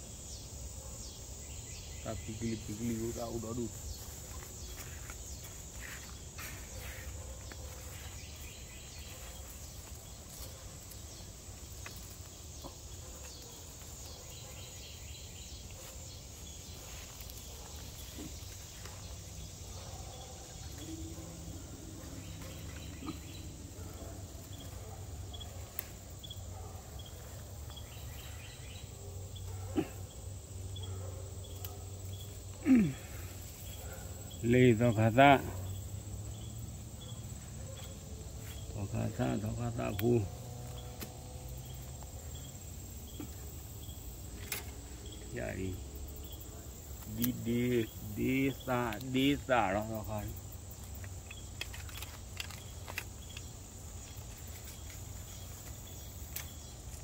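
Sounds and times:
insect chirring: 0.0 - 57.0
leaves rustling: 1.4 - 30.0, 31.4 - 57.0.

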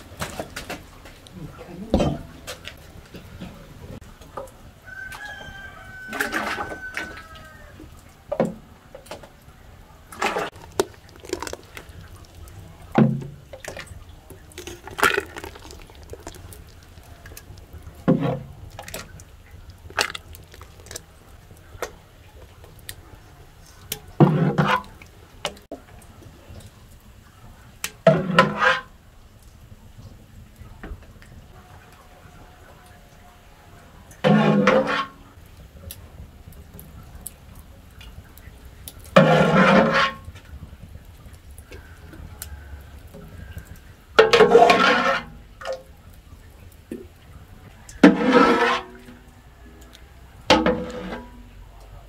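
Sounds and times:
liquid pouring into bucket: 10.1 - 22.9, 39.0 - 40.3, 47.9 - 49.4
liquid dripping: 10.1 - 24.2.

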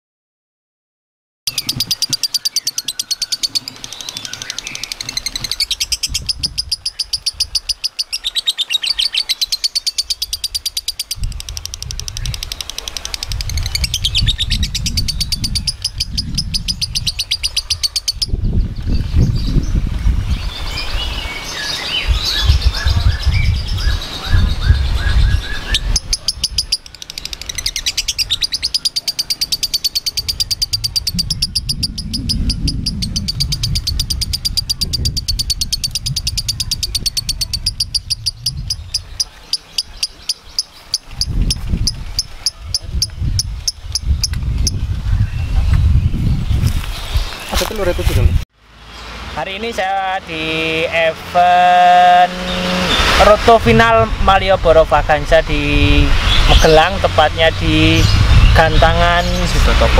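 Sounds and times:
lovebird chattering: 1.5 - 18.6, 20.5 - 46.0.

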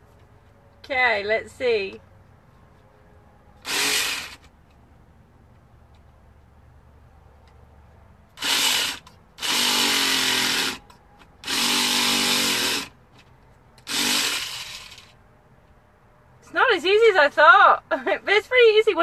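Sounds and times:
carving tool buzzing: 3.6 - 4.5, 8.4 - 13.0, 13.8 - 15.1.

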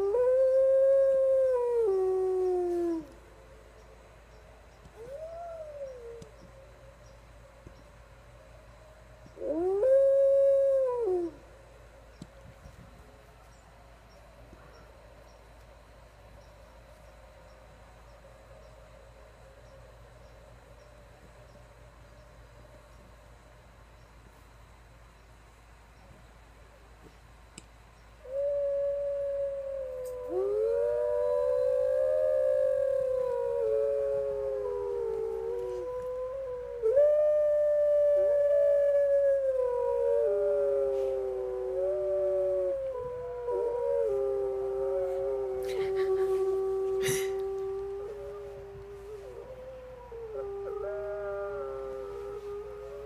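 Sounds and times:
puppy howling: 28.5 - 53.0.

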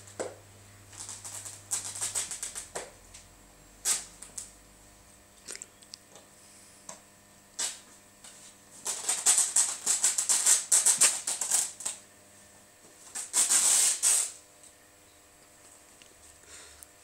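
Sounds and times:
dog tearing at fabric: 1.0 - 2.7, 8.8 - 12.0, 13.1 - 14.4.

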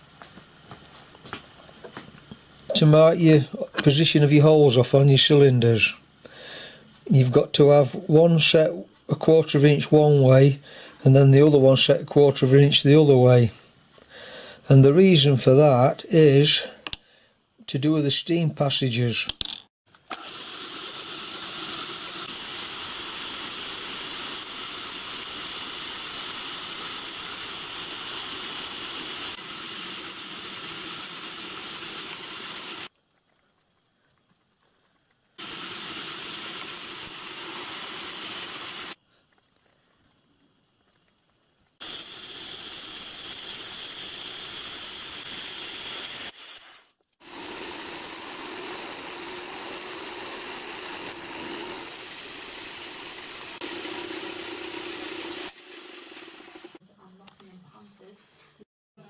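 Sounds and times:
pillar drill drilling: 20.1 - 32.9, 35.4 - 39.0, 41.8 - 56.8
milling machine running: 21.6 - 32.9, 35.4 - 39.0, 41.8 - 46.6, 47.2 - 56.8.

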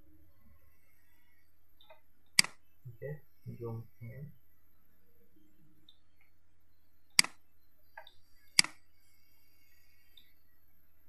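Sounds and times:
mouse button clicks: 7.2 - 7.4, 8.0 - 8.8.

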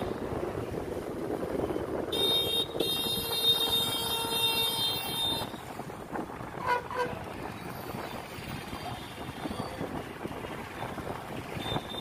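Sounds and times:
road and wind noise: 0.0 - 12.0
vehicle horn honking: 2.1 - 5.5.

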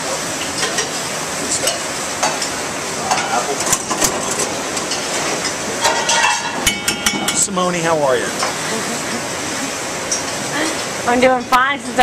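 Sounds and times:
hiss of cooking and ventilation: 0.0 - 12.0
pans and utensils clinking: 0.4 - 7.8.

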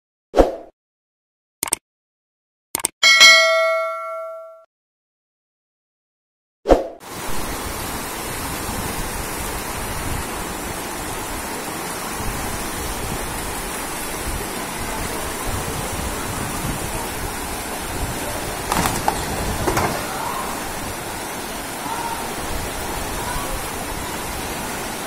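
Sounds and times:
floodwater rushing: 7.0 - 25.0.

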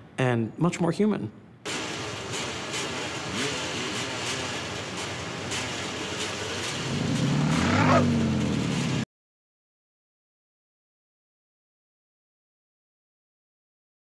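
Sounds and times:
city street traffic: 1.4 - 9.1
motor engine revving: 1.7 - 9.0.

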